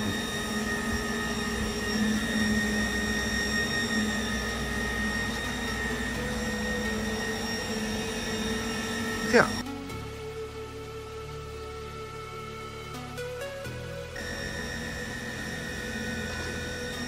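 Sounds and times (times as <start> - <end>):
welding machine humming: 0.0 - 10.1, 14.2 - 17.0
held whining tones: 0.0 - 17.0.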